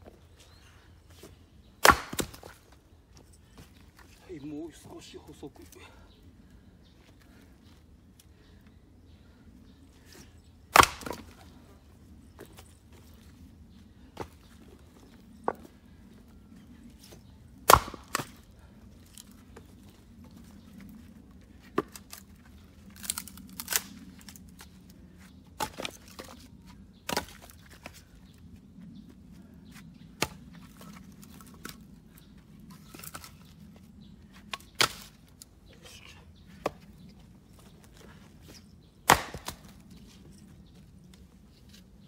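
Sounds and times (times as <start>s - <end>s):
axe striking firewood: 1.8s - 2.6s, 10.7s - 11.4s, 17.6s - 18.4s, 30.2s - 30.4s, 34.5s - 35.2s, 39.0s - 39.8s.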